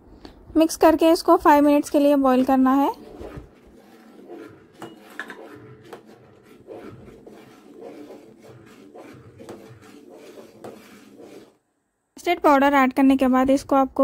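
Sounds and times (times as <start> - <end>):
spoon scraping pot bottom: 2.4 - 11.6.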